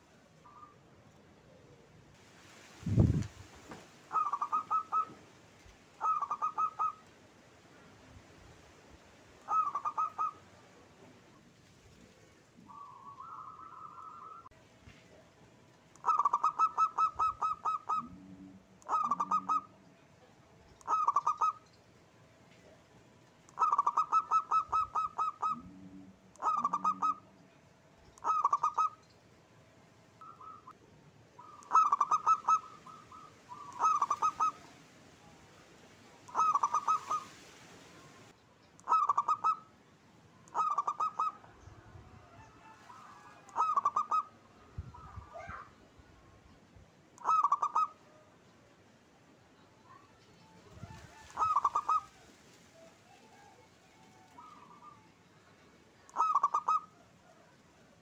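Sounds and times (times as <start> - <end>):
dove cooing: 4.1 - 5.3, 6.0 - 7.1, 9.4 - 11.1, 12.1 - 14.5, 16.0 - 19.8, 20.8 - 21.6, 23.5 - 27.4, 28.2 - 29.0, 30.2 - 30.8, 31.4 - 34.8, 36.2 - 37.4, 38.8 - 39.7, 40.5 - 45.7, 47.2 - 48.2, 50.6 - 55.2, 56.1 - 57.6.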